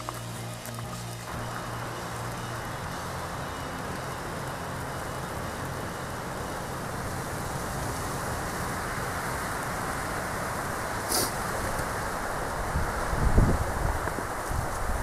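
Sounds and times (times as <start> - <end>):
wind rushing: 7.0 - 15.0.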